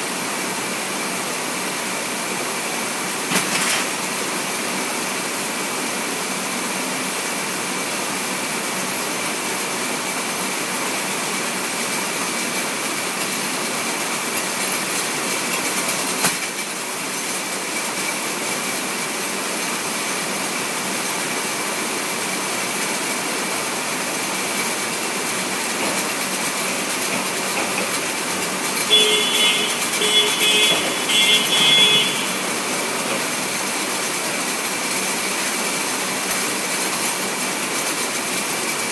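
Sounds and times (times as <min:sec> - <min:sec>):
conveyor machinery running: 0:00.0 - 0:38.9.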